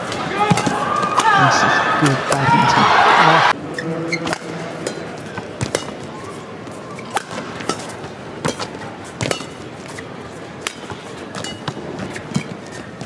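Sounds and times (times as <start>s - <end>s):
rackets hitting shuttlecock: 0.0s - 1.5s, 4.1s - 13.0s
arena crowd noise: 0.0s - 13.0s.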